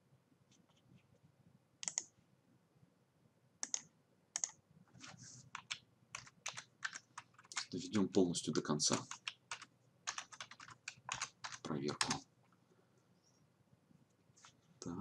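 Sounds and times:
mouse clicks: 1.8 - 2.1
keyboard keystrokes: 4.4 - 4.6, 8.9 - 12.2.

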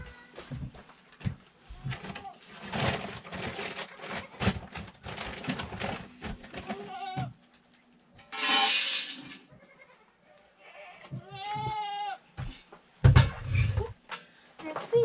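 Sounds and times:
rustling: 0.0 - 9.8
goats bleating: 6.8 - 7.3, 9.6 - 12.2.

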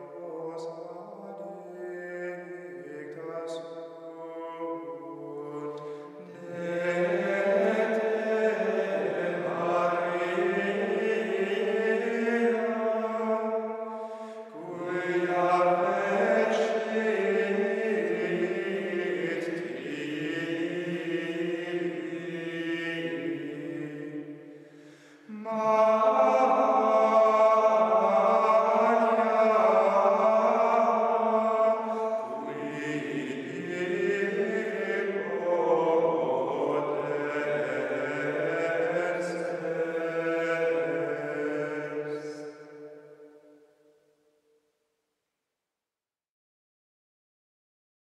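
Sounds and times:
men singing plainchant in unison: 0.0 - 13.6, 14.5 - 24.2, 25.3 - 42.6.

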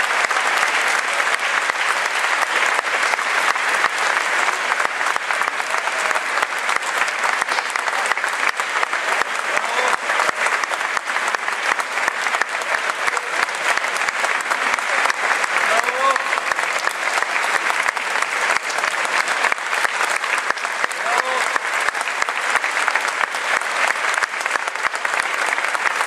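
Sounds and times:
audience applauding: 0.0 - 26.0.

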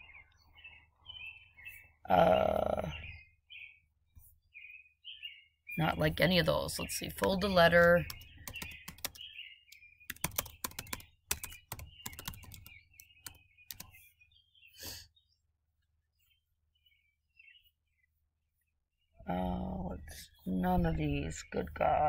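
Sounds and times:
typing on a keyboard: 7.2 - 9.2, 10.1 - 14.0.

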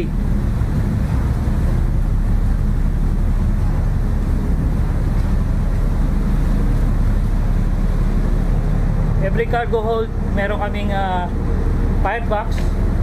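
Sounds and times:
ship low rumble: 0.0 - 13.0
wind buffeting microphone: 0.0 - 13.0.

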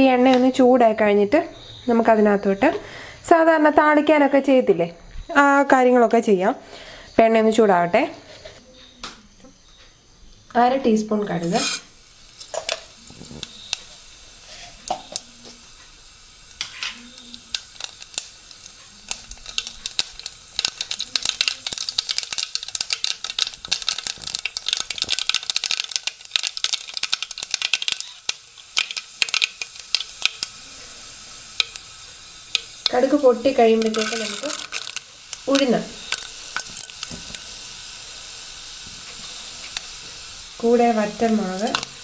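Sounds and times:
seeds sizzling in hot oil: 0.0 - 4.6, 9.5 - 42.0
seeds crackling and popping: 8.8 - 42.0.

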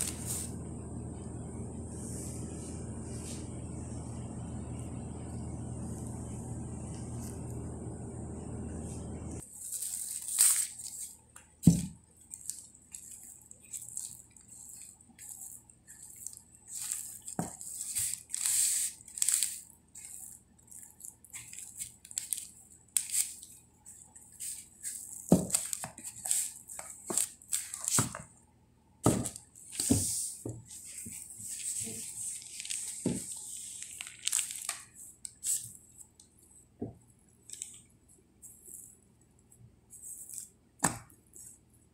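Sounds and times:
low hum: 0.0 - 9.4
plastic wrap crinkling: 9.4 - 28.2, 31.0 - 36.2, 37.4 - 37.9.

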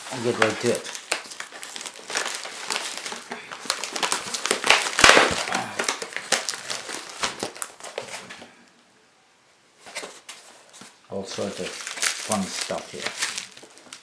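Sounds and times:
packaging crinkling: 0.0 - 8.3, 11.2 - 14.0.

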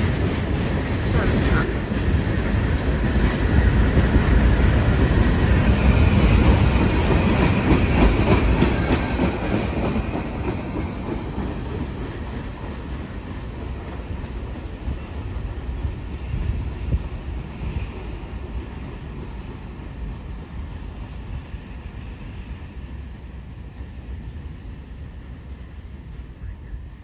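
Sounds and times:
train wheels clicking over rail joints: 0.0 - 24.5
freight train rumble: 0.0 - 27.0.

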